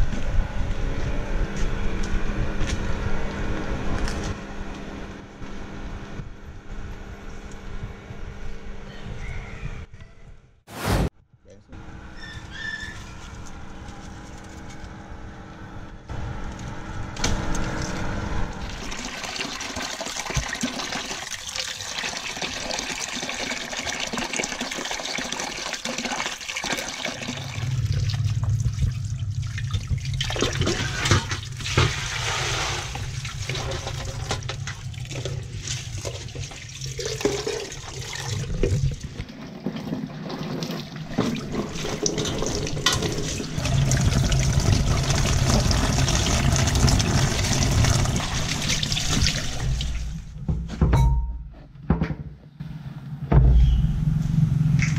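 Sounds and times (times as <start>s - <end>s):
water running from a tap: 18.6s - 39.0s, 40.6s - 50.1s
splashing while washing by hand: 18.6s - 39.1s.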